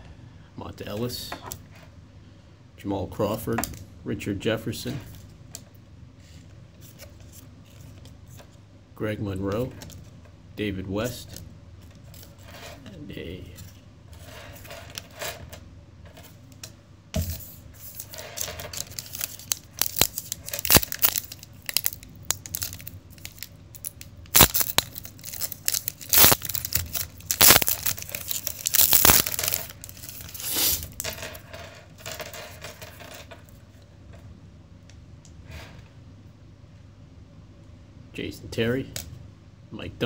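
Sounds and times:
foil wrapper tearing and crinkling: 17.8s - 31.0s.

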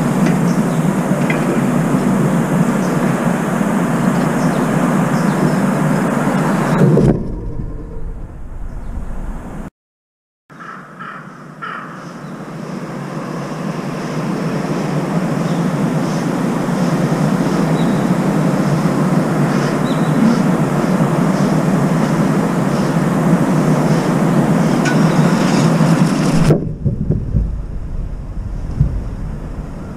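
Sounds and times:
crow cawing: 10.5s - 12.4s
rushing noise: 12.8s - 29.9s.

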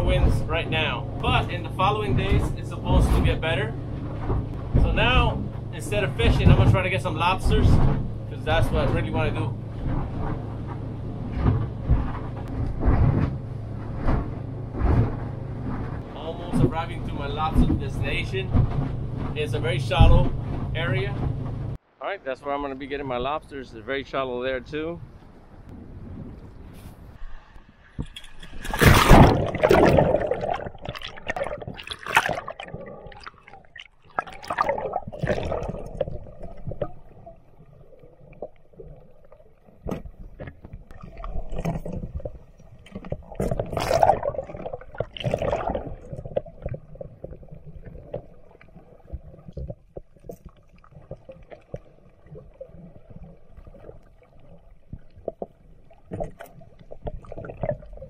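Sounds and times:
underwater gurgling and bubbling: 0.0s - 13.2s, 28.6s - 58.0s
loud splash: 28.6s - 37.3s, 43.3s - 46.7s.

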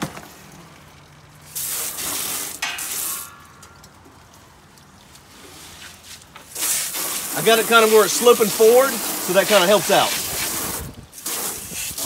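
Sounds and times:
hose spraying water on metal: 0.3s - 12.0s.

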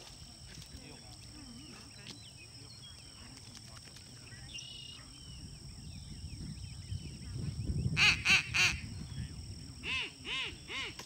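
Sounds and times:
duck call quacks: 8.0s - 8.8s.

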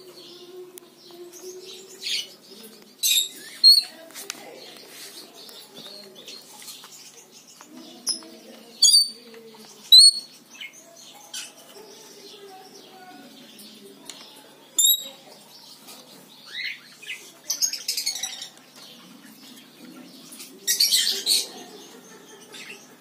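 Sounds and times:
parrot high-pitched chirps: 3.1s - 3.9s.

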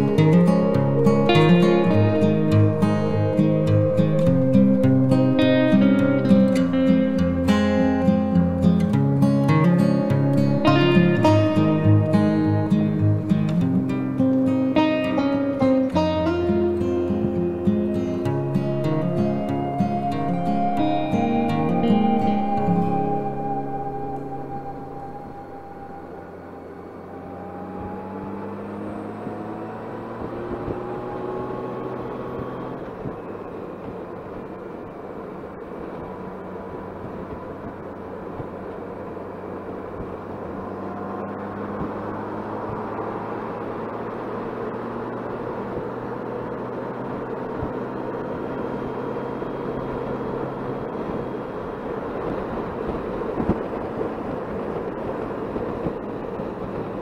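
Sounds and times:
motorcycle engine accelerating: 0.0s - 35.0s, 35.6s - 57.0s
wind and road noise: 0.0s - 57.0s.

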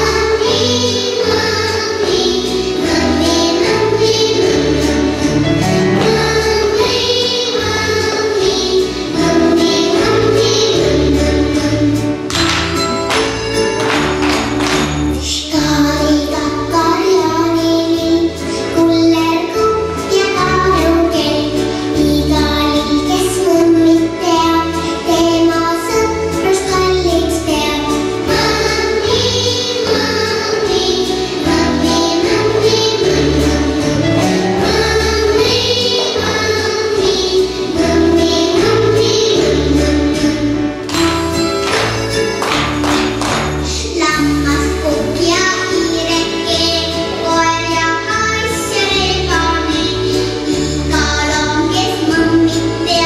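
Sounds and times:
voices singing together: 0.0s - 12.2s, 27.9s - 43.8s
children's dance song: 0.0s - 53.0s.

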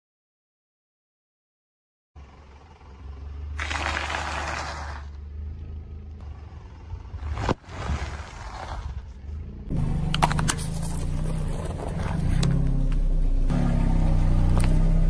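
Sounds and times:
car engine humming: 2.2s - 15.0s
car tyre crushing snacks: 3.6s - 5.2s, 10.1s - 12.4s.

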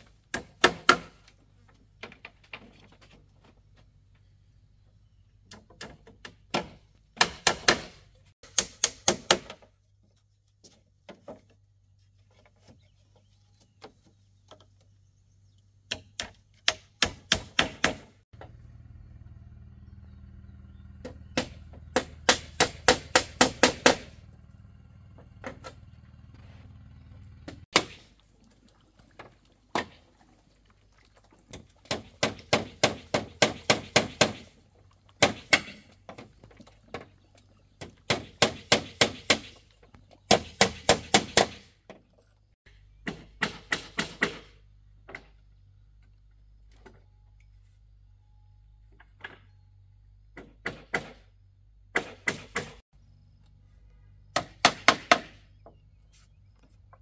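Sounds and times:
hammer driving nails: 21.4s - 24.2s, 31.9s - 34.5s, 40.3s - 41.7s.

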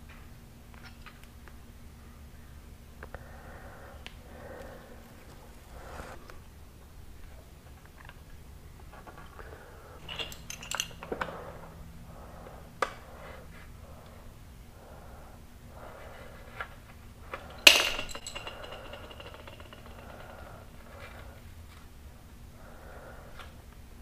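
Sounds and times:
small hard parts clinking: 10.0s - 11.5s, 17.2s - 21.3s
sharp ringing clink: 17.4s - 20.6s.

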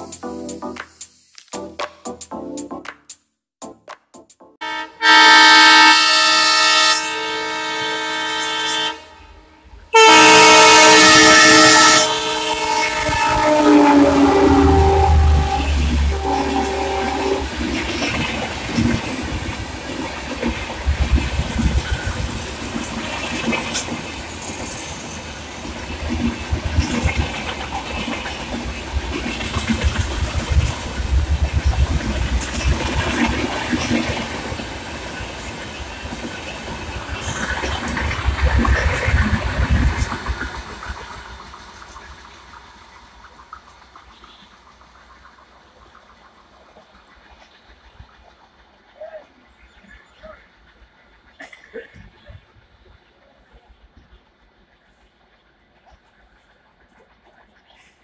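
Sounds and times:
train horn blast: 4.6s - 17.8s
train wheels clattering over rails: 17.6s - 48.9s.

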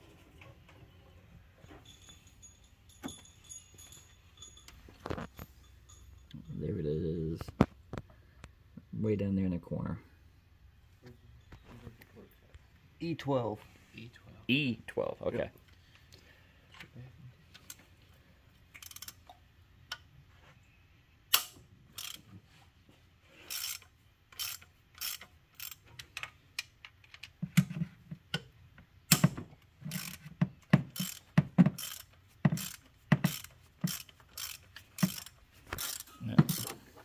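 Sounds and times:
hand ratchet clicking: 18.8s - 19.2s, 21.3s - 22.2s, 23.4s - 27.3s, 29.1s - 36.8s.

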